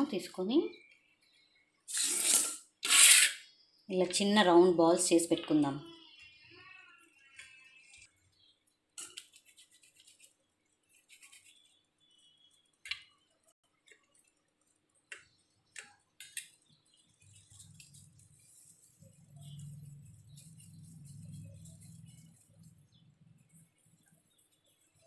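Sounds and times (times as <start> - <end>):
faint clicks and taps: 12.7 - 16.8.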